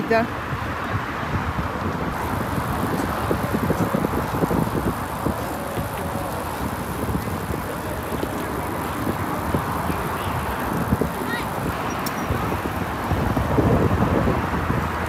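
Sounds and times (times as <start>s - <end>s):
tyre and road rumble: 0.0s - 15.0s
wind buffeting microphone: 0.0s - 15.0s
small knocks from bike: 2.4s - 12.4s.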